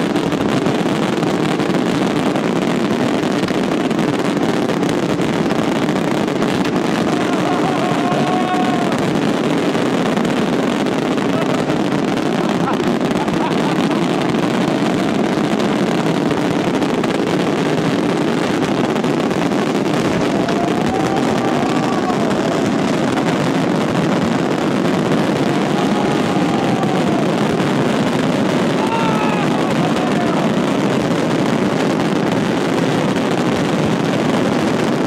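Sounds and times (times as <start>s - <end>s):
fireworks bursting: 0.0s - 35.0s.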